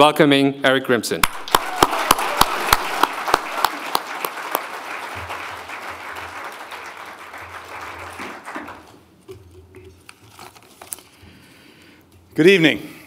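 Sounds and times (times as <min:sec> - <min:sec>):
audience applause: 0:01.2 - 0:09.0
sharp hand claps near microphone: 0:01.2 - 0:09.0.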